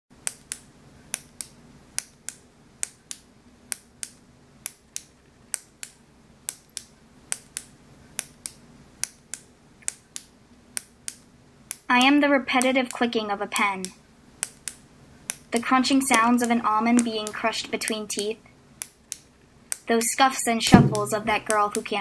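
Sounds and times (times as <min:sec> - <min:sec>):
ballpoint pen clicking: 0:00.2 - 0:11.8, 0:14.4 - 0:18.0, 0:18.8 - 0:19.8.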